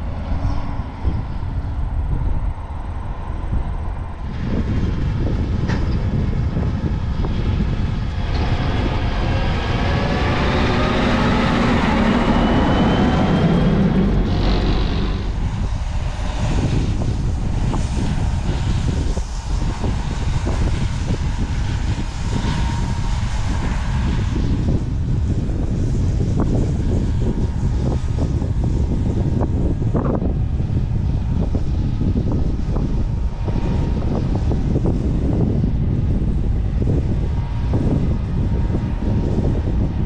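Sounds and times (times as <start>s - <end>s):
wind buffeting microphone: 0.0s - 40.0s
tractor engine passing: 7.8s - 17.7s.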